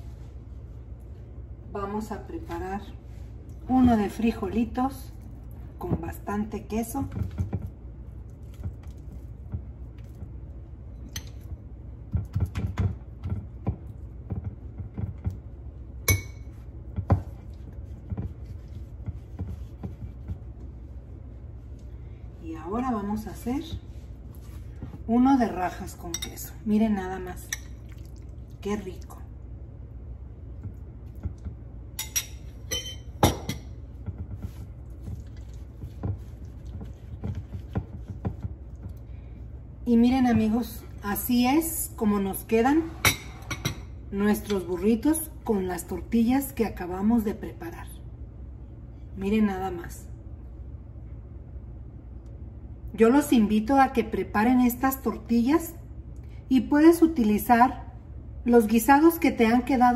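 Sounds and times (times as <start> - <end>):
hands rolling tortilla: 3.4 - 26.0, 30.6 - 39.2.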